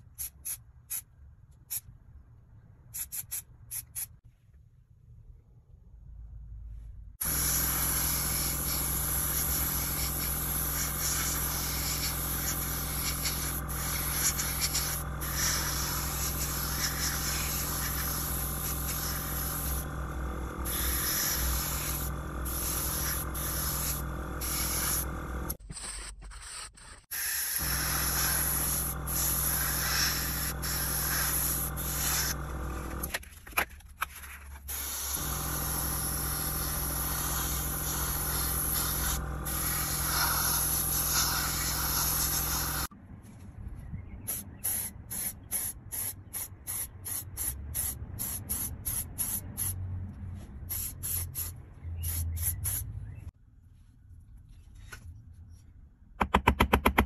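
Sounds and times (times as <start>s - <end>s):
steady low hum: 4.9s - 25.6s, 27.5s - 33.4s, 34.2s - 45.5s
airbrush hissing: 7.2s - 25.6s, 26.3s - 33.1s, 34.7s - 42.9s, 44.3s - 49.8s, 50.7s - 52.9s.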